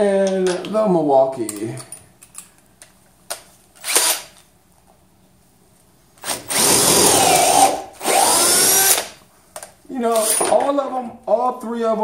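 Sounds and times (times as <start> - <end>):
cordless drill boring into wood: 3.8 - 4.3, 6.2 - 9.2.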